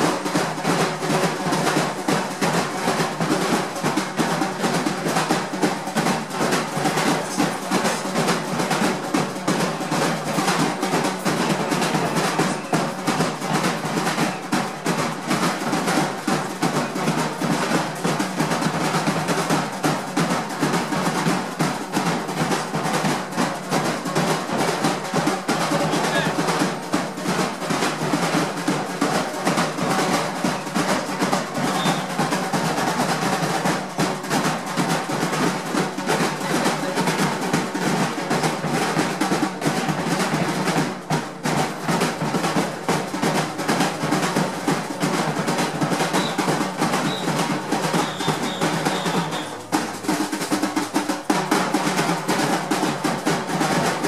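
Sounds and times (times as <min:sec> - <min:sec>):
snare drums playing rolls: 0:00.0 - 0:54.0.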